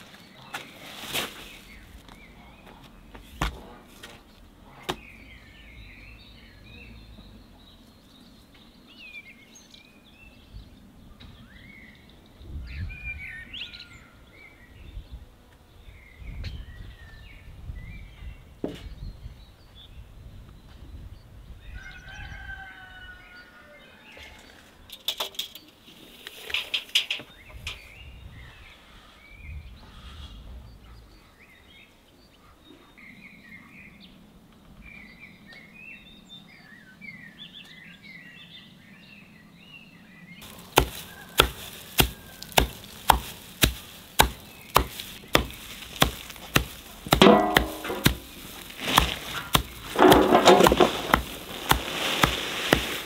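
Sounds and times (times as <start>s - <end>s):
birds chirping: 0.0s - 24.6s, 25.3s - 53.0s
chopping straw on wooden block: 40.4s - 53.0s
sharp knocks: 40.7s - 53.0s.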